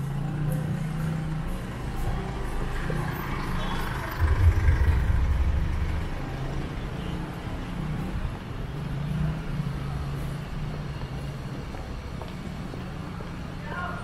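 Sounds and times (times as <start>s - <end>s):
vehicle engine running: 4.1s - 7.1s.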